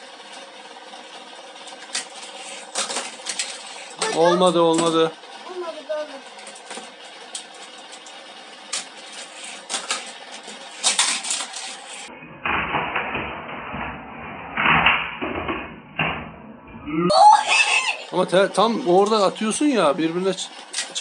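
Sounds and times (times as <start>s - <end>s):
toy cars clattering on plastic track: 1.6s - 13.2s, 18.2s - 21.0s.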